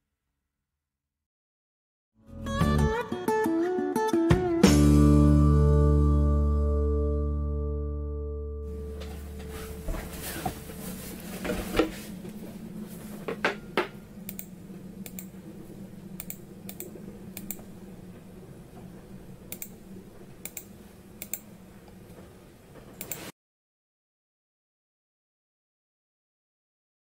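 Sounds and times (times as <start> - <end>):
faint steady hum: 8.6 - 23.3
computer mouse clicking: 14.3 - 15.3, 16.2 - 17.7, 19.5 - 19.8, 20.4 - 21.5, 23.0 - 23.3.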